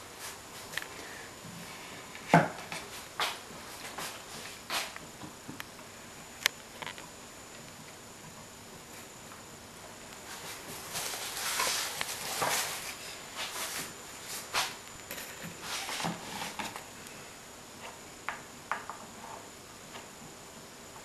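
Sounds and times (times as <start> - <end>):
wooden boards knocking and rustling: 2.3 - 2.8.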